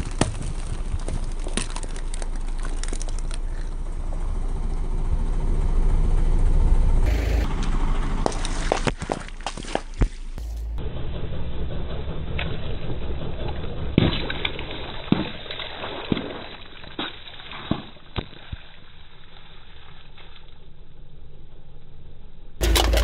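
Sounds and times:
liquid splattering on asphalt: 0:08.2 - 0:10.4, 0:14.0 - 0:20.6.

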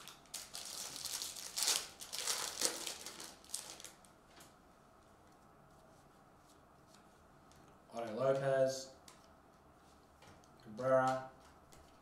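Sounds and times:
foil wrapper crinkling and tearing: 0:00.0 - 0:04.0.

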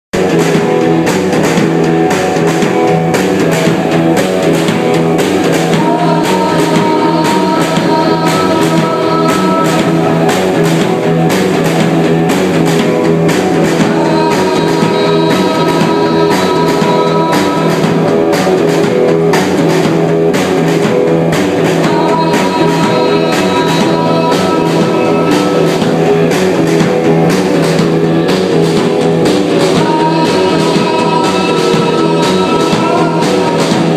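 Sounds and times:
bass guitar: 0:00.0 - 0:33.9
drum kit: 0:00.1 - 0:33.9
electric guitar: 0:00.1 - 0:33.9.

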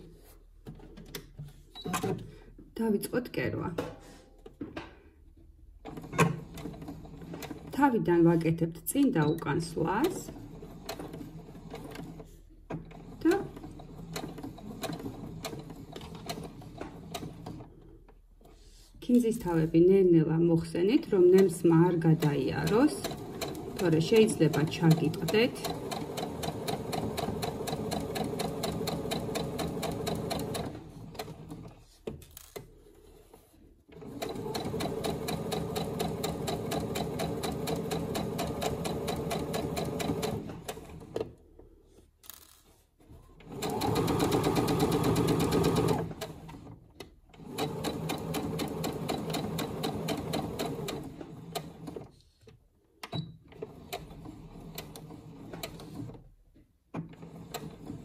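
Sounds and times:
sewing machine stitching: 0:05.8 - 0:07.9, 0:09.1 - 0:18.0, 0:21.2 - 0:41.4, 0:42.3 - 0:52.2, 0:53.1 - 0:58.0.

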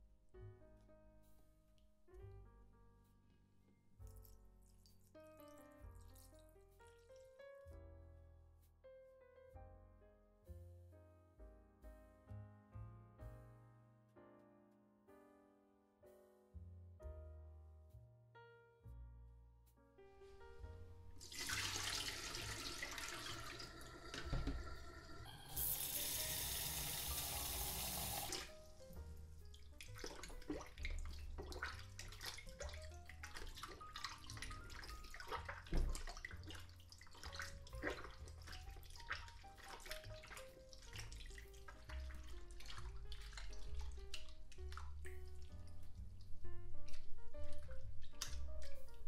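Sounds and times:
soft piano music: 0:00.0 - 0:49.0
dough splashing in water: 0:21.2 - 0:24.8, 0:26.2 - 0:49.0
tap water running into a bowl: 0:21.2 - 0:28.6.

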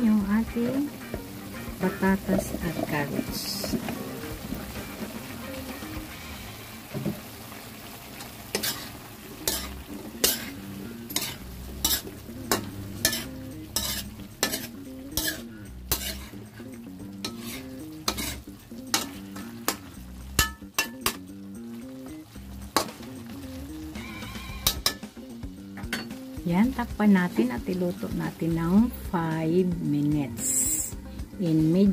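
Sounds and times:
metal ladle scraping wok: 0:01.8 - 0:06.0, 0:08.5 - 0:19.8, 0:23.9 - 0:25.1.

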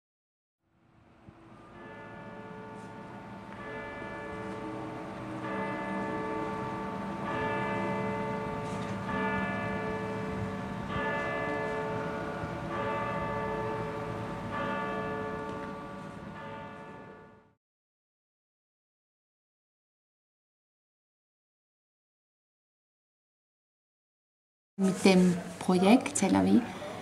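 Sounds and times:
church bell tolling: 0:01.4 - 0:17.6.

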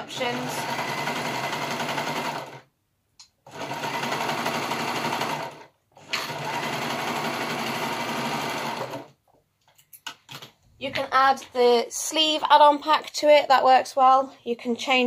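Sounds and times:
overlocker stitching: 0:03.5 - 0:09.2.

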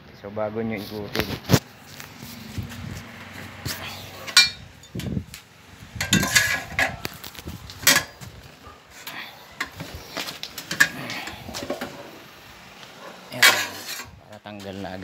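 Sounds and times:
tire iron clanking on wheel rim: 0:03.2 - 0:05.3, 0:05.9 - 0:07.1, 0:07.8 - 0:08.3, 0:13.3 - 0:14.2.

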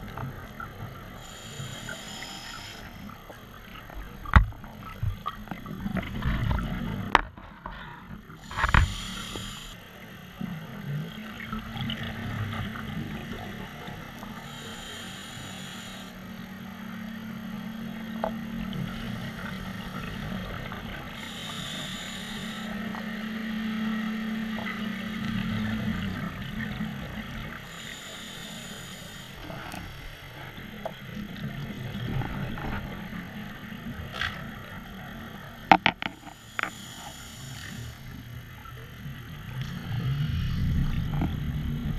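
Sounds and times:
scuba regulator inhalation hiss: 0:01.2 - 0:03.2, 0:08.4 - 0:09.8, 0:14.2 - 0:16.2, 0:21.1 - 0:22.9, 0:27.6 - 0:30.3, 0:35.8 - 0:38.2
exhaled bubbles rumbling: 0:38.4 - 0:41.9.

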